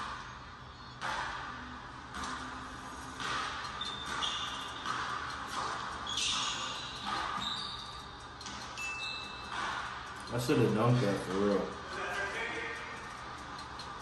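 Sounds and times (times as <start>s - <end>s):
sneakers squeaking on court: 2.1s - 11.1s.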